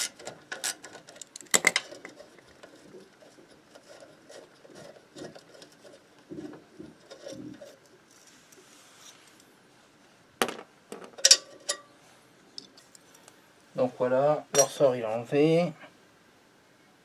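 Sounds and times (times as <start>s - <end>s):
metal clicks and scrapes: 0.0s - 9.5s.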